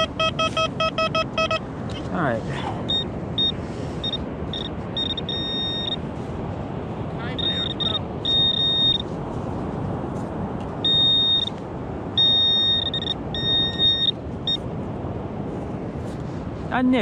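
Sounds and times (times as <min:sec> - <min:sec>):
pinpointer probe buzzing beeps: 0:00.0 - 0:01.6, 0:02.9 - 0:06.0, 0:07.4 - 0:09.0, 0:10.8 - 0:11.6, 0:12.2 - 0:14.6.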